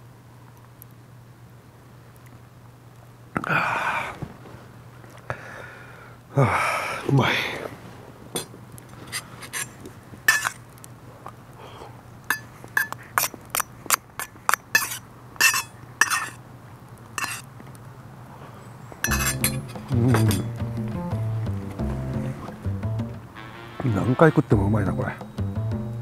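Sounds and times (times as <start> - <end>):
metal spoon clinking on metal bowl: 10.3 - 10.6, 12.3 - 16.4, 17.2 - 17.4, 19.0 - 20.6
background music: 19.1 - 26.0.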